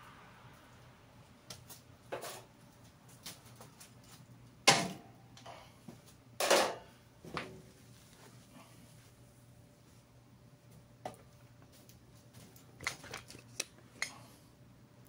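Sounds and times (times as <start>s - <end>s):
objects clunking on metal workbench: 4.7s - 5.1s, 6.4s - 7.6s.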